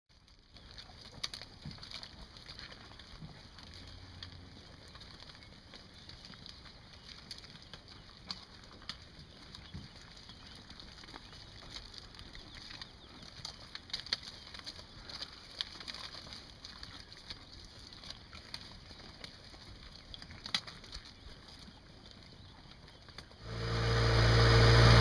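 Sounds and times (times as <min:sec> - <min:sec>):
cows crunching stalks: 0:00.1 - 0:25.0
short low hum: 0:23.4 - 0:25.0.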